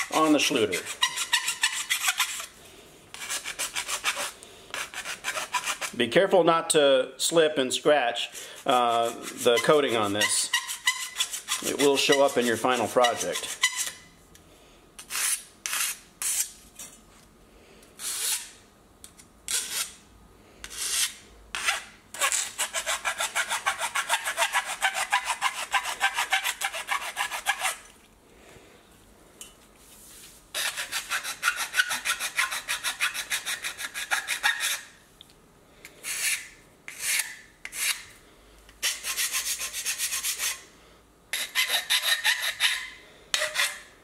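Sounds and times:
file rasping on metal: 0.0s - 2.5s, 3.1s - 6.0s, 8.4s - 14.0s, 20.6s - 27.8s, 30.6s - 34.9s, 38.8s - 40.6s, 41.3s - 43.9s.

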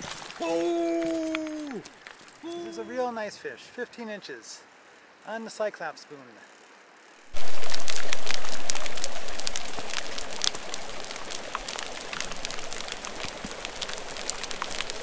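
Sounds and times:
rain falling: 0.0s - 3.0s, 7.3s - 15.0s.

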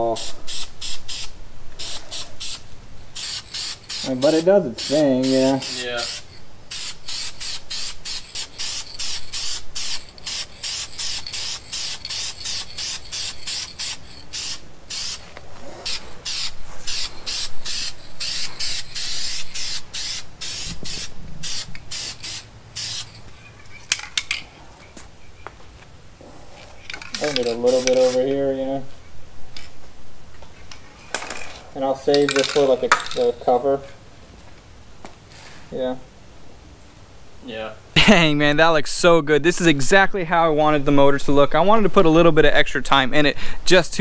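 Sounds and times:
spray paint can hissing: 0.2s - 23.3s, 27.2s - 28.2s.

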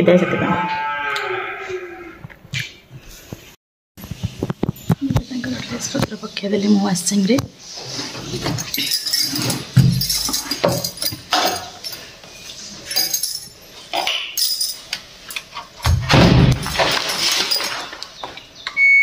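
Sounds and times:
knocks and clinks: 8.3s - 12.1s, 12.9s - 15.6s.

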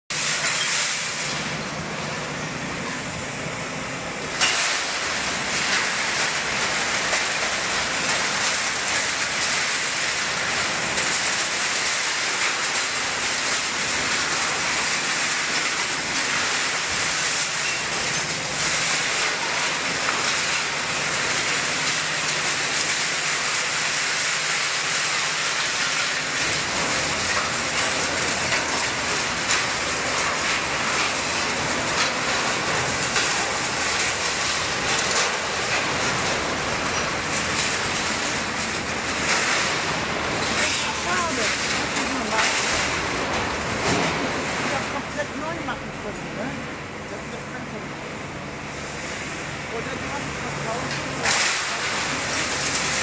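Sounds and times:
excavator diesel engine: 1.1s - 23.7s, 25.2s - 53.0s
scrap metal clattering and scraping: 4.3s - 45.1s.

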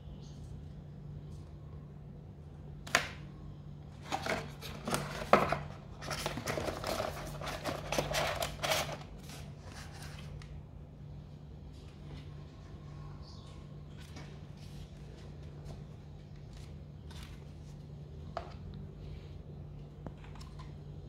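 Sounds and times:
paper and cardboard rustling: 4.0s - 10.4s.

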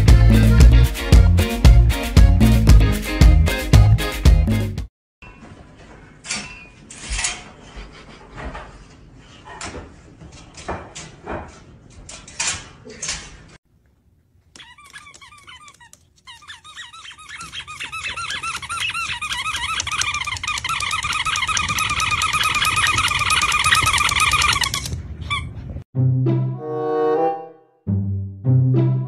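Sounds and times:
high chirping squeaks: 14.6s - 25.6s.

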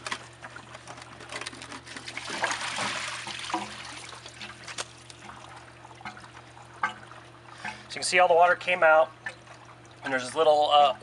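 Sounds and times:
water spilling onto concrete: 2.1s - 4.4s.

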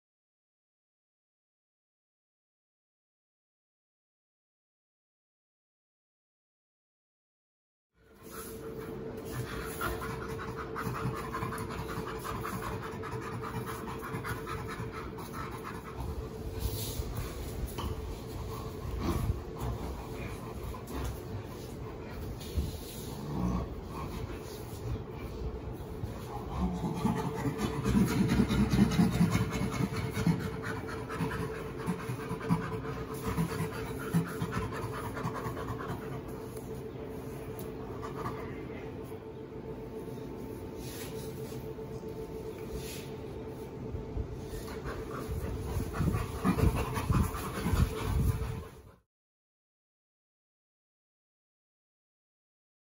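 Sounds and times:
chimpanzees play-panting: 8.2s - 39.1s, 44.4s - 49.0s.

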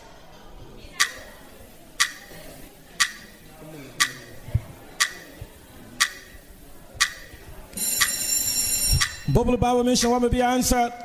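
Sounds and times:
countdown timer ticking: 1.0s - 1.2s, 2.0s - 2.4s, 3.0s - 3.4s, 4.0s - 4.4s, 5.0s - 5.4s, 6.0s - 6.4s, 7.0s - 8.2s.

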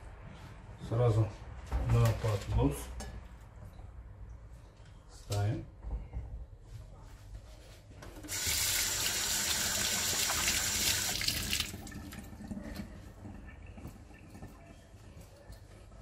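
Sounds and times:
water tap running: 8.2s - 12.9s.

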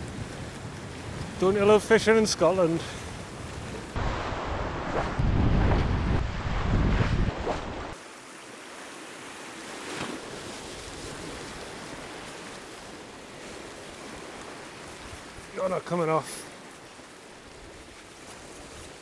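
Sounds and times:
wind buffeting microphone: 0.0s - 8.0s
sea surf breaking on boulders: 0.0s - 19.0s.

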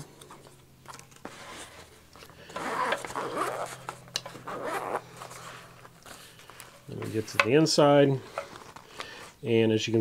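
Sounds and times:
zipper unzipping: 2.4s - 5.7s.

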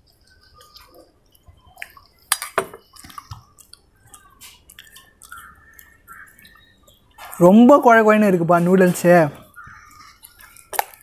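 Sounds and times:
chewing noodles: 0.0s - 7.4s, 9.4s - 11.0s
wet mouth clicks: 1.8s - 6.3s.

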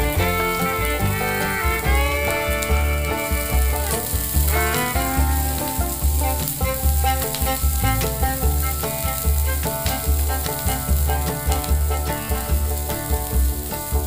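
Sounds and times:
wooden spatula stirring in pan: 0.1s - 14.0s
onions sizzling in hot oil: 3.0s - 14.0s.

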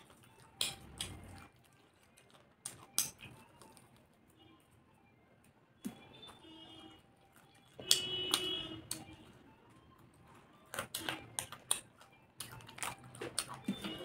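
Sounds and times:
wet lip smacks and chewing: 10.7s - 13.9s.

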